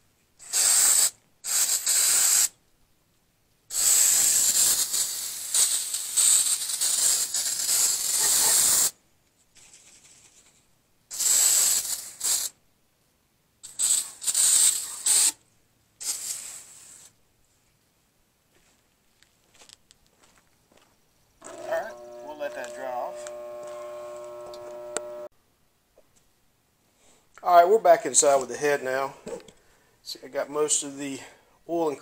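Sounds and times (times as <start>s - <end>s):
pressure sprayer hissing: 3.7s - 8.9s, 21.4s - 25.3s.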